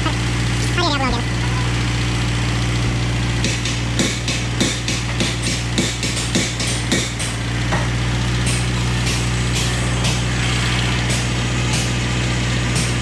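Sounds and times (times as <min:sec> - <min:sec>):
low machine drone: 0:00.0 - 0:13.0.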